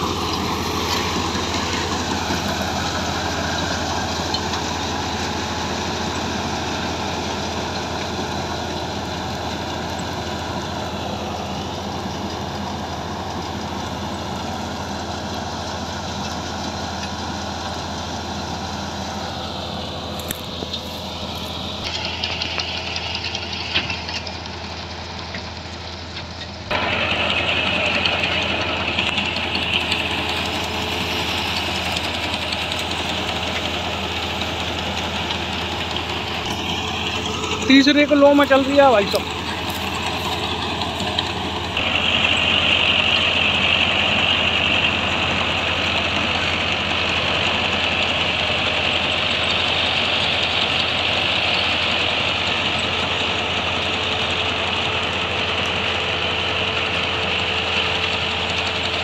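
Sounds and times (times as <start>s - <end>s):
tractor diesel engine running: 0.0s - 59.0s
reaper rotor whirring: 26.7s - 59.0s.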